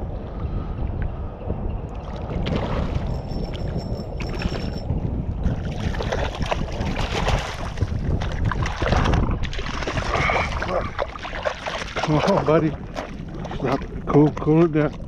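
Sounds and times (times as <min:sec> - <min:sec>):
wind buffeting the microphone: 0:00.0 - 0:15.0
water lapping: 0:05.4 - 0:15.0
fish splashing at the surface: 0:05.7 - 0:13.9.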